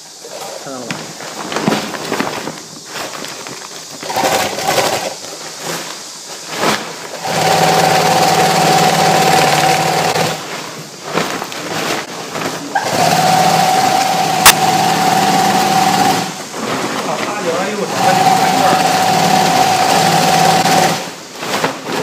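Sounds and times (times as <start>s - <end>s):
fabric knocks: 0.9s - 4.3s
sewing machine humming: 4.0s - 5.2s, 7.1s - 10.6s, 12.6s - 21.2s.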